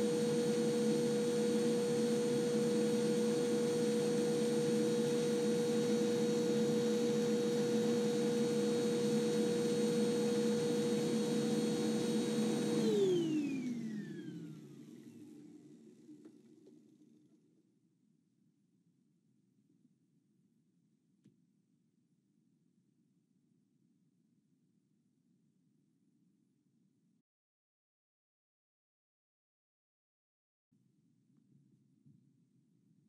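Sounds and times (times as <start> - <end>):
vacuum cleaner motor whining: 0.0 - 16.4.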